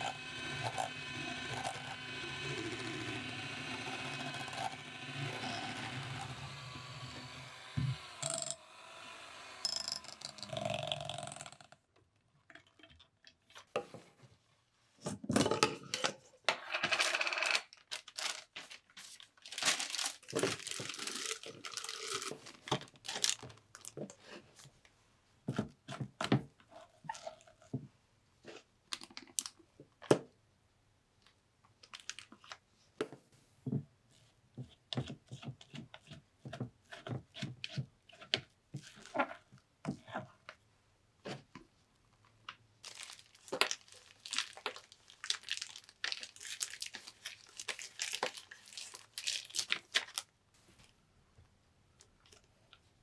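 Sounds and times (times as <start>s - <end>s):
electric hand mixer whirring: 0.0s - 11.0s
plastic crinkling: 17.7s - 24.0s, 42.8s - 50.3s.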